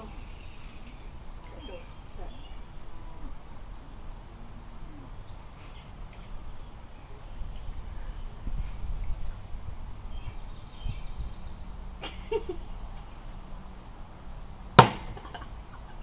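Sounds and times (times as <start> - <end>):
bird chirping: 0.0 - 3.9, 4.9 - 9.4, 10.0 - 12.9
low outdoor rumble: 0.0 - 16.0.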